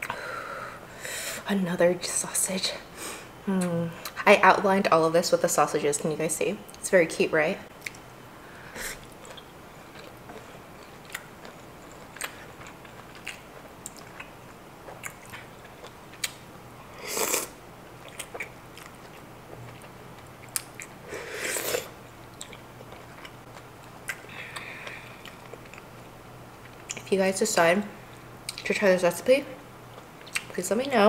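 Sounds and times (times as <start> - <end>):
chewing with wet mouth clicks: 7.8 - 8.0, 9.0 - 16.4, 18.0 - 21.0, 22.3 - 26.0, 26.6 - 27.1, 28.1 - 28.7, 29.9 - 30.6
slurping noodles: 17.0 - 17.6, 21.2 - 21.9.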